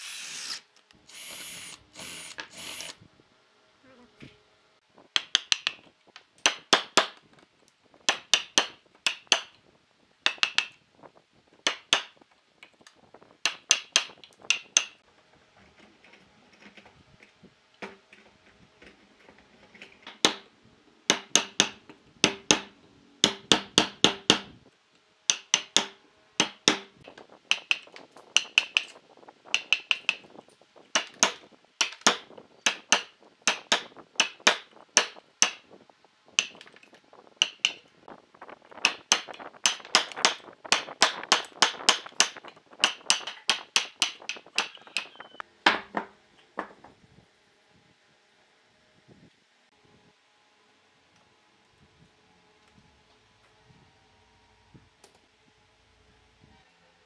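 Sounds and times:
hammer striking steel chisel: 21.1s - 24.5s, 25.3s - 28.9s, 31.0s - 35.6s, 37.4s - 37.8s.

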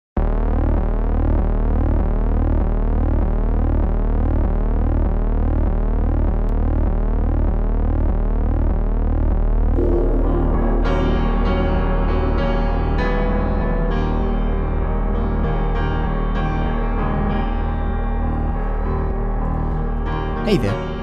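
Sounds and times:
pulsing bass drone: 0.2s - 13.9s
music with piano: 9.8s - 21.0s.

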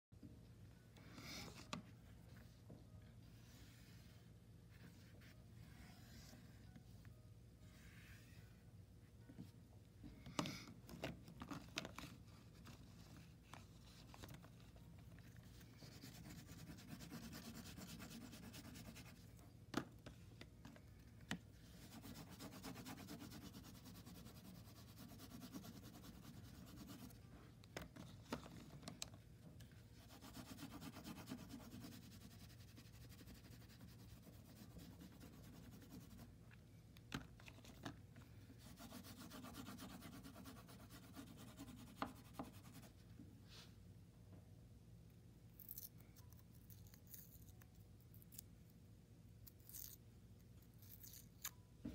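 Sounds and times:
oil pastel scratching on paper: 12.0s - 19.4s, 21.6s - 27.2s, 29.9s - 36.4s, 38.6s - 43.0s.

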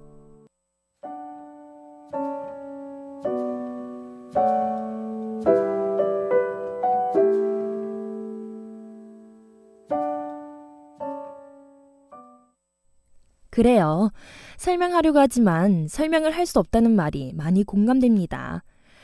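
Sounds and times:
slow gentle piano music: 0.0s - 12.6s.

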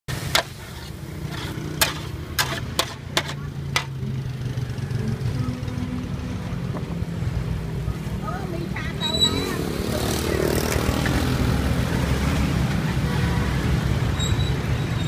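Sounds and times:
metal spatula scraping frying pan: 0.1s - 4.0s.

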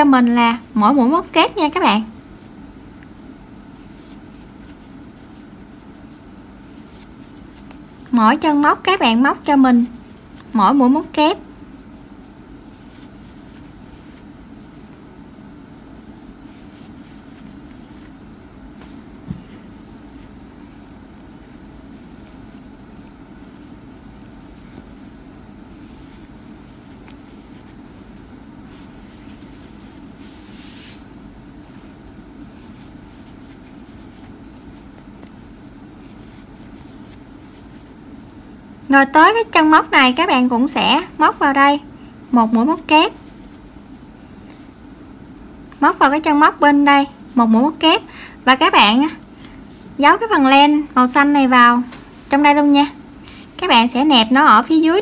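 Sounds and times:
low background hum: 0.0s - 55.0s
soft rustles and ticks of yarn: 0.0s - 55.0s.

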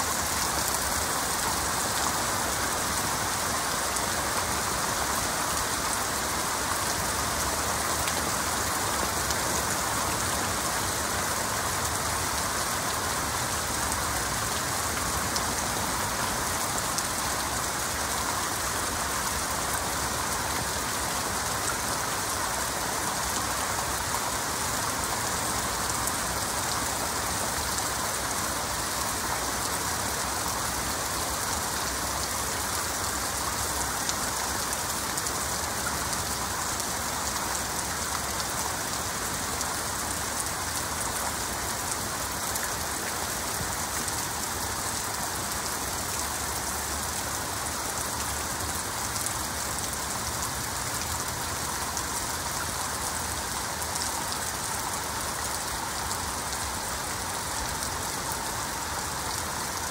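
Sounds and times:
heavy rain falling: 0.0s - 59.9s.

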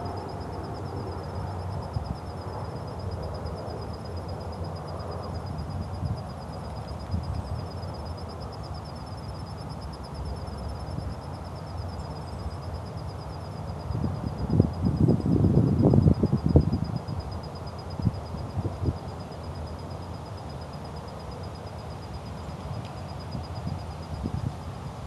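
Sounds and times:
wind rumbling on microphone: 5.0s - 7.9s, 13.8s - 19.2s, 22.6s - 25.0s.

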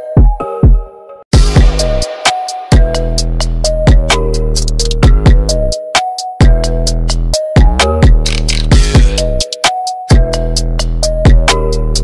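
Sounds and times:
bass drum hits: 1.3s - 4.2s, 5.0s - 5.6s, 8.0s - 9.4s
hi-hat ticks: 2.7s - 12.0s.

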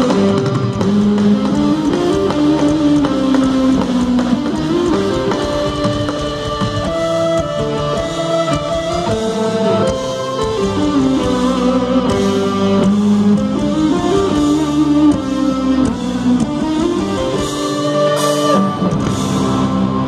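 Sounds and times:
metal band playing live: 0.0s - 20.0s.

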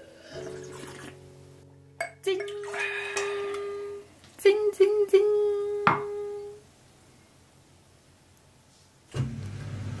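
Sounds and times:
glass mug knock on wood: 5.9s - 6.1s.

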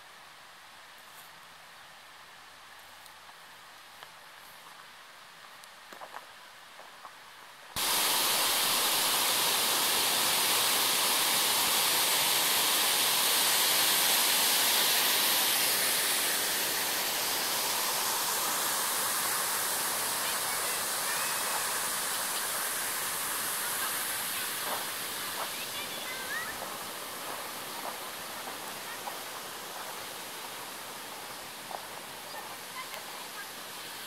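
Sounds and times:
stream running over stones: 7.8s - 34.0s.

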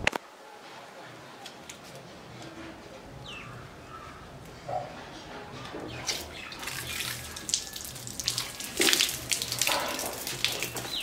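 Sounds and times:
water splashing from tap: 5.9s - 11.0s.

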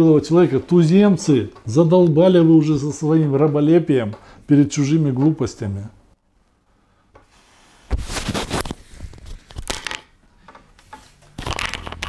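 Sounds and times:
clothing rubbing on microphone: 7.3s - 9.5s.

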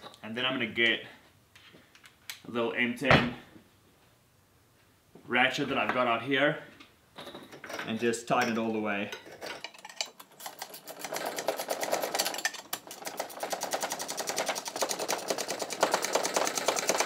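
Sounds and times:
hand ratchet clicking: 10.0s - 17.0s.

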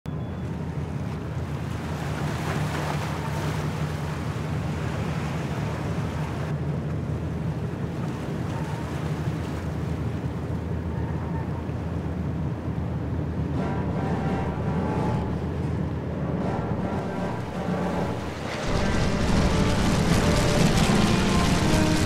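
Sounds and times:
wind: 0.0s - 22.0s
waves: 0.1s - 22.0s
low rumble: 12.4s - 22.0s.

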